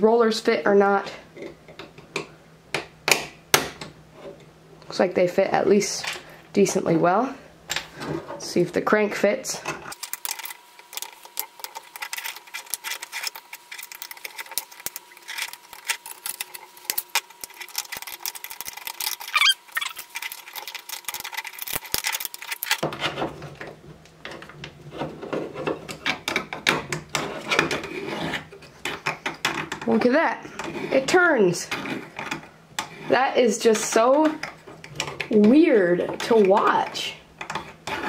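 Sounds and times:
plastic parts clicking and knocking: 0:09.6 - 0:30.0, 0:33.8 - 0:38.0
plastic gears grating: 0:09.9 - 0:38.0
short rising squeak: 0:19.2 - 0:20.0.

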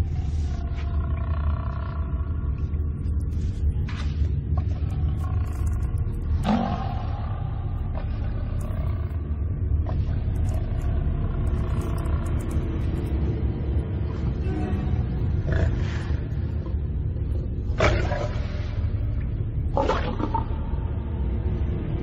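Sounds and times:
lions growling: 0:04.6 - 0:16.8, 0:17.6 - 0:18.9.

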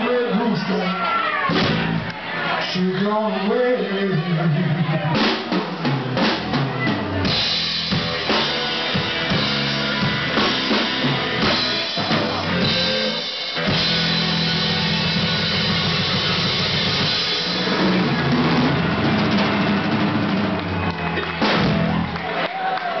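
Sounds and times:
drum kit with cymbal crashes: 0:05.1 - 0:22.1
electric guitar: 0:06.9 - 0:22.4.

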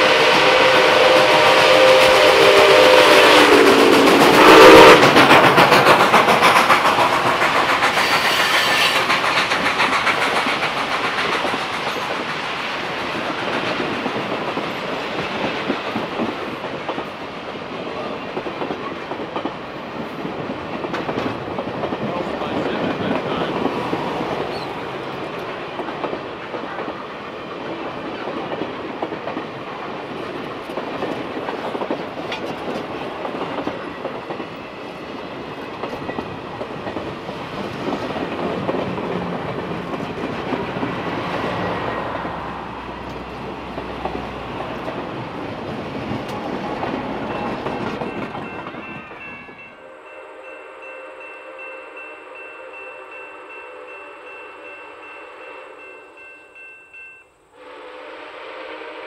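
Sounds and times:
train wheels clattering over rail joints: 0:03.4 - 0:41.9, 0:43.0 - 0:49.6.

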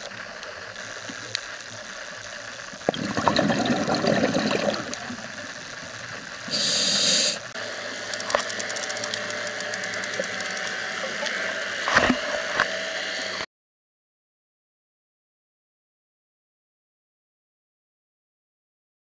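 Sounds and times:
underwater bubbles rushing: 0:02.7 - 0:06.5
fast clicks: 0:08.1 - 0:10.8.

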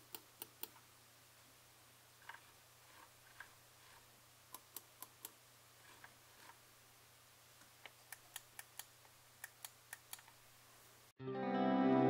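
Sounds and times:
controller buttons clicking: 0:07.9 - 0:10.4.

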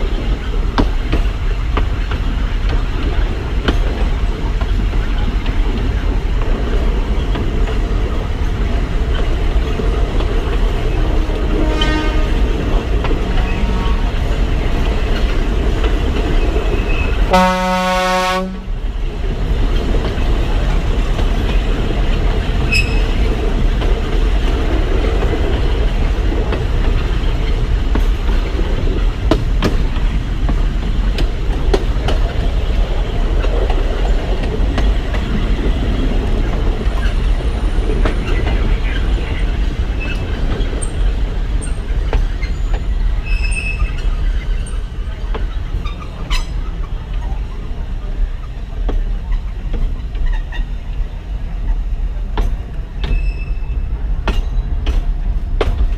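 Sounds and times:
diesel locomotive running: 0:00.0 - 0:55.9
locomotive horn blast: 0:11.2 - 0:12.5, 0:17.3 - 0:18.7.

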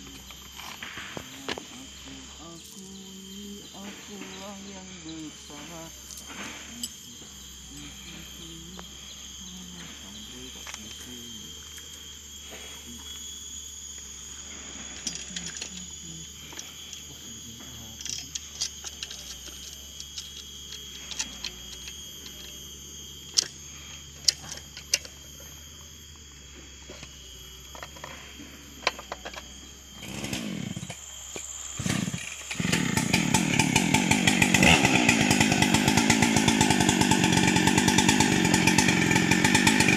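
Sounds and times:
insects buzzing: 0:00.0 - 0:39.9
chainsaw engine starting and running: 0:05.3 - 0:13.1, 0:29.9 - 0:39.9.

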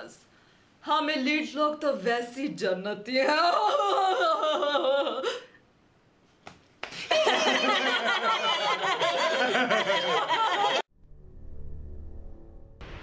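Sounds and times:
group laughing loudly: 0:07.0 - 0:10.9.

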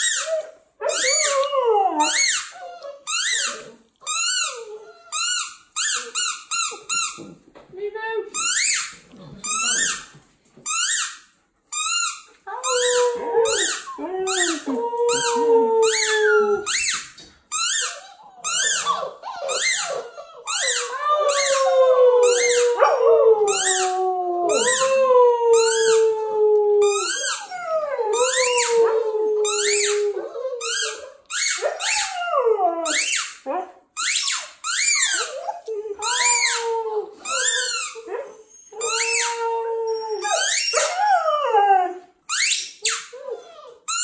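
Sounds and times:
puppies howling: 0:12.5 - 0:16.8, 0:18.0 - 0:33.1
puppies yelping: 0:12.5 - 0:24.9, 0:34.2 - 0:41.4.

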